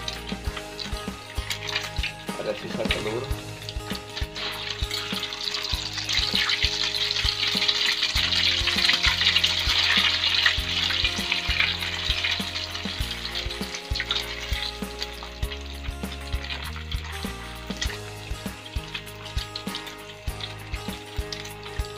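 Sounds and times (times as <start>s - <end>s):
dough sizzling in hot oil: 0.0s - 21.9s.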